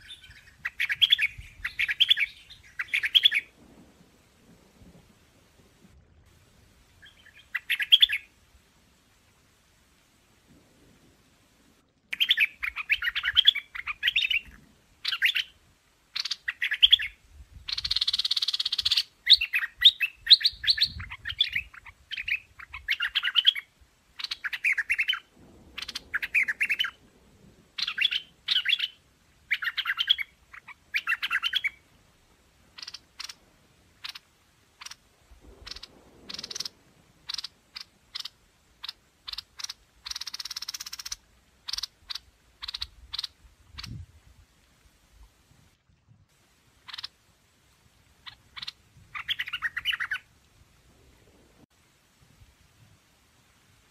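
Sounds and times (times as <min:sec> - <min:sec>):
bulbul chattering calls: 0:00.0 - 0:03.5, 0:07.0 - 0:08.3, 0:12.2 - 0:15.5, 0:17.7 - 0:23.6, 0:27.8 - 0:31.8, 0:32.8 - 0:33.4, 0:35.6 - 0:36.7, 0:37.3 - 0:44.0, 0:46.9 - 0:47.2, 0:48.2 - 0:50.2
bird harsh call: 0:35.6 - 0:43.9.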